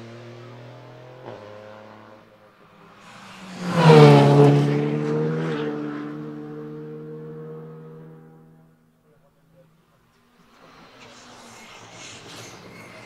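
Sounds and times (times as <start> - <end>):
car passing close: 0.0 - 8.9
rally car engines at full throttle: 0.0 - 13.0.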